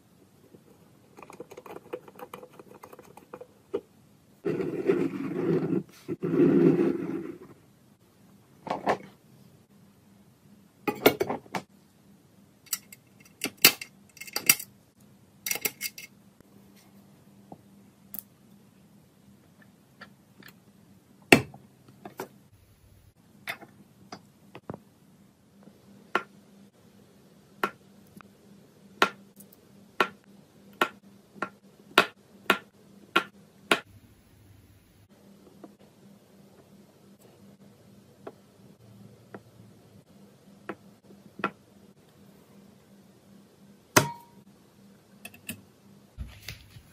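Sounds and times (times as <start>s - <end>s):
small metal parts clicking: 12.7s - 14.7s, 15.4s - 16.1s.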